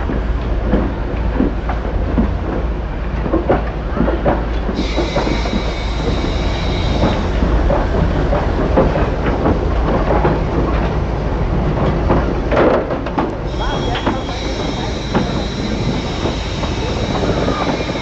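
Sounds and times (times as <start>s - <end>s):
train wheels knocking over rails: 0.0s - 18.0s
high steam hiss: 4.7s - 8.1s, 13.5s - 18.0s.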